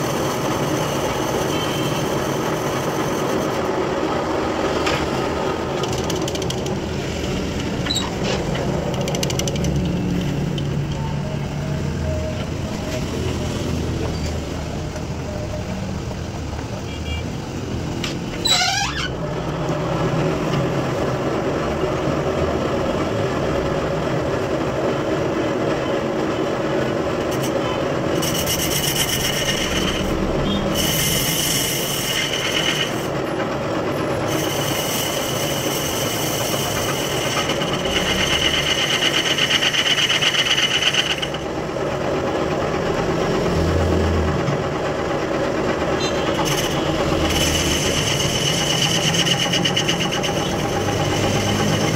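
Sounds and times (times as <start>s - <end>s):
lathe running: 0.0s - 16.7s, 19.2s - 51.9s
cutting bit scraping metal: 27.3s - 33.2s, 34.2s - 41.5s, 46.0s - 51.9s.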